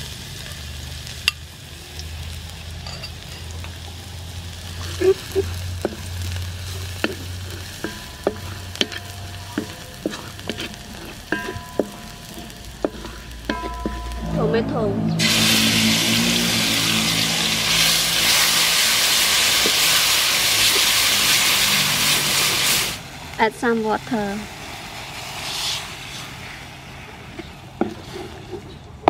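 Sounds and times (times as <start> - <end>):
garlic sizzling in oil: 0.0 - 28.5
wooden spatula scraping wok: 4.8 - 23.0, 25.2 - 29.0.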